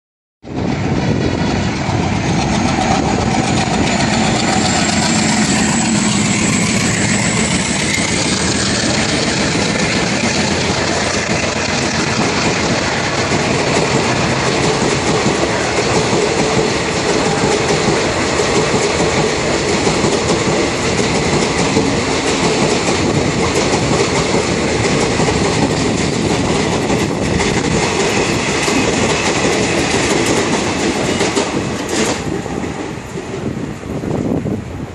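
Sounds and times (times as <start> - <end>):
diesel locomotive engine running hard: 0.4 - 34.9
high whine: 0.6 - 19.6
train wheels clattering over rail joints: 0.7 - 33.6.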